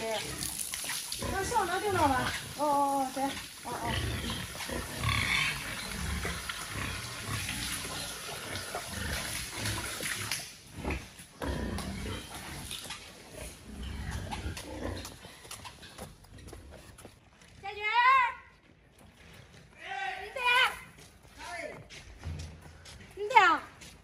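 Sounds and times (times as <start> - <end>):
pigs grunting: 0.0 - 17.0.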